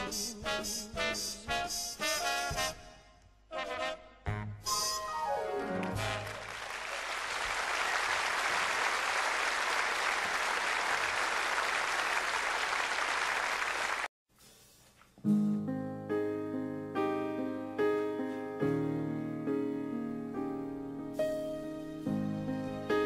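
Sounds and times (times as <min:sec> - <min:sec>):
swing big band playing: 0:00.0 - 0:02.8, 0:03.5 - 0:06.5
audience applauding: 0:05.6 - 0:14.1
soft piano: 0:15.2 - 0:23.0.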